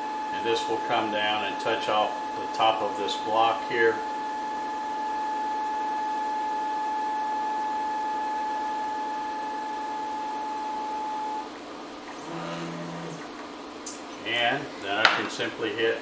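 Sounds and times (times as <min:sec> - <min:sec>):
short lower motor hum: 0:09.7 - 0:14.8
stepper motor whining: 0:12.0 - 0:13.4.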